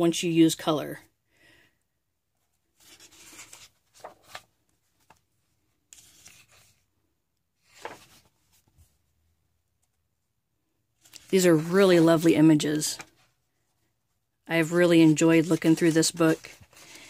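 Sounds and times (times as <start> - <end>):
paper pages rustling: 2.4 - 6.9, 7.6 - 9.0, 11.0 - 13.8, 14.8 - 17.0.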